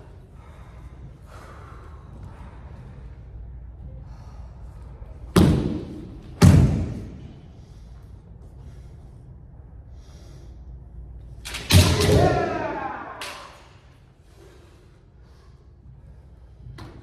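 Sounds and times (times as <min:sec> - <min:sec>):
person shouting: 0:11.8 - 0:13.5.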